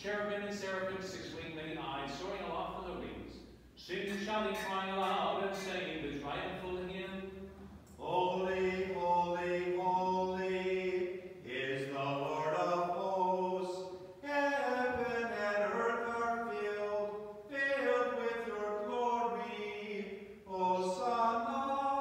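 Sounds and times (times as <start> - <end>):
person singing liturgical chant: 7.9 - 22.0.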